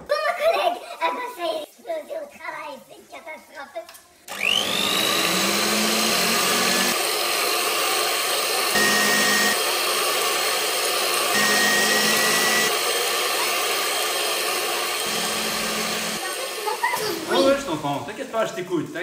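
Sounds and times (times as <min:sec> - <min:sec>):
blender motor whine: 0:04.3 - 0:17.9.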